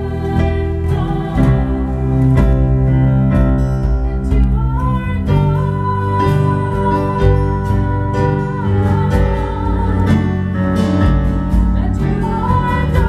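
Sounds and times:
acoustic guitar: 0.0 - 13.0
bass guitar: 0.0 - 13.0
woman singing: 4.0 - 13.0.

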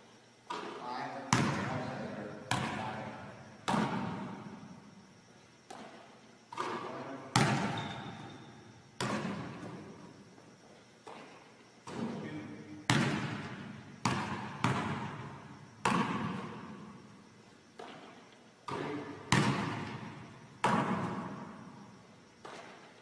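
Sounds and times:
basketball bouncing on gym floor: 0.5 - 1.8, 2.5 - 3.0, 3.6 - 4.6, 5.7 - 9.9, 11.0 - 12.3, 12.9 - 17.0, 17.8 - 21.6, 22.4 - 22.8.

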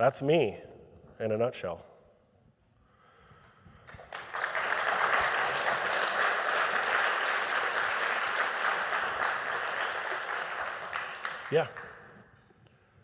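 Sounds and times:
audience applauding: 3.8 - 12.3.

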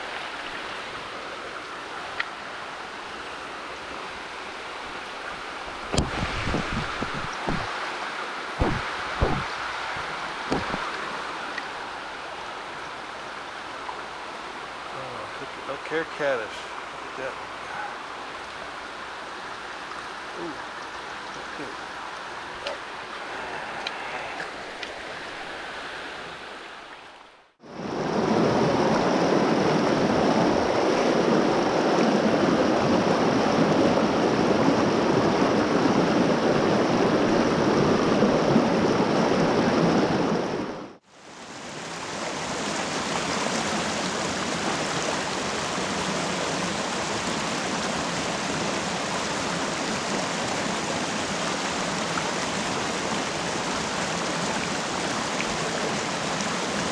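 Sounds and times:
creek rushing over stones: 0.0 - 56.9.

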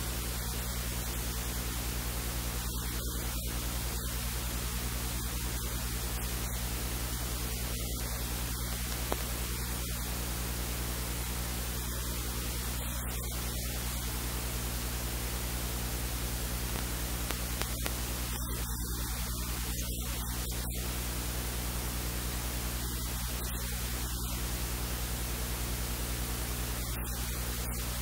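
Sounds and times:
constant hiss: 0.0 - 28.0
electrical mains hum: 0.0 - 28.0
faint click: 8.7 - 9.3, 16.7 - 18.0.

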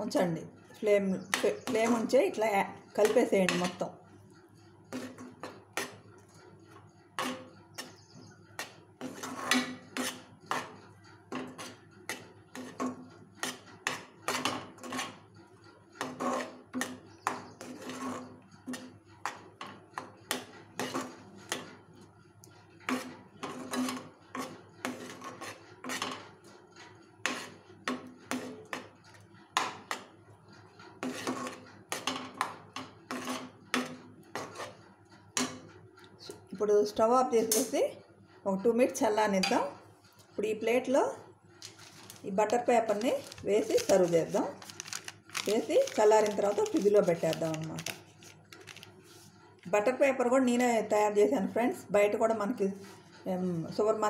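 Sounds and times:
spoon scraping a metal pan: 0.8 - 2.4, 3.0 - 3.8, 4.9 - 6.0, 7.2 - 15.2, 16.0 - 21.8, 22.8 - 30.1, 30.9 - 34.8, 37.4 - 37.8, 41.6 - 48.0.

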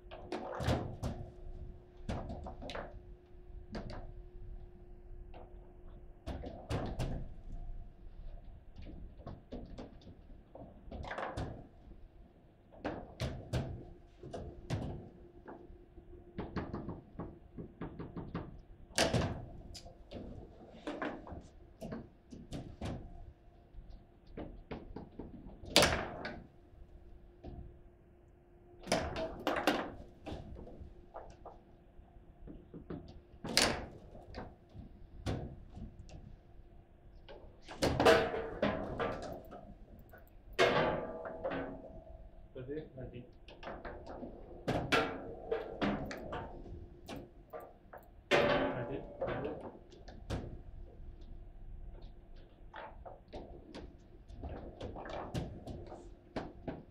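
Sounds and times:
table football knocks and clacks: 16.4 - 19.5.

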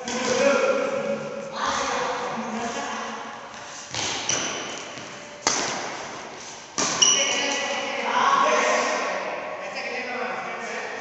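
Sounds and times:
badminton racket hitting shuttlecock: 3.8 - 7.6.

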